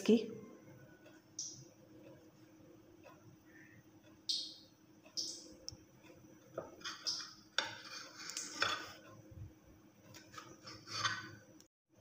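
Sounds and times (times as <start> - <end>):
blade scraping ceramic plate: 6.6 - 9.0, 10.1 - 11.4
knife sawing through bread: 10.4 - 11.2.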